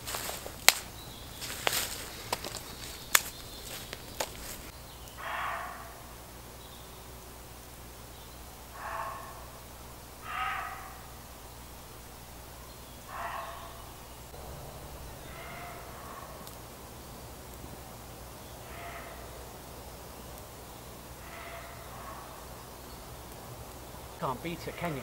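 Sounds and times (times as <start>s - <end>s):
dry sticks snapping: 0.0s - 5.2s, 15.2s - 16.7s
harsh animal calls: 1.4s - 7.1s, 8.4s - 17.4s, 18.3s - 19.9s, 20.9s - 25.0s.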